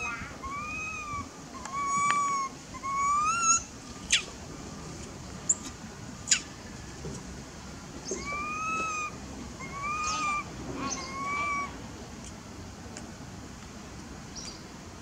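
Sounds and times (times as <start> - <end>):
monkey whistled coos: 0.0 - 4.3, 8.2 - 11.8
monkey sharp squeaks: 1.6 - 4.3.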